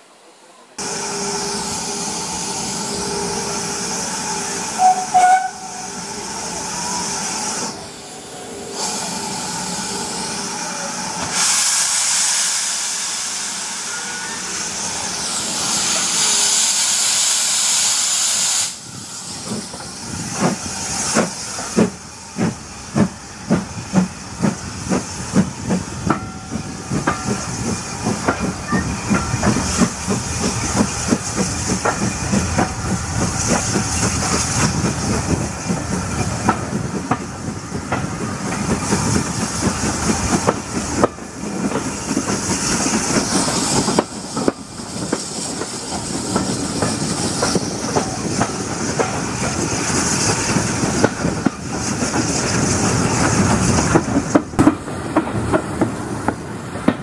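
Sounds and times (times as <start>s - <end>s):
steam hissing: 0.8s - 57.0s
steam locomotive whistle: 4.5s - 6.0s.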